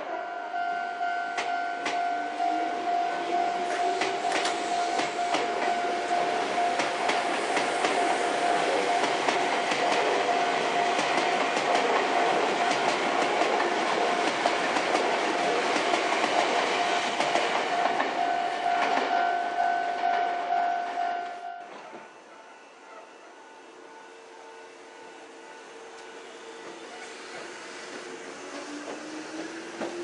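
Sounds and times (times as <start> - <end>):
level-crossing bell ringing: 0.0 - 13.0, 17.7 - 21.8
train wheels clicking over rail joints: 1.3 - 2.1, 3.6 - 19.3, 25.9 - 30.0.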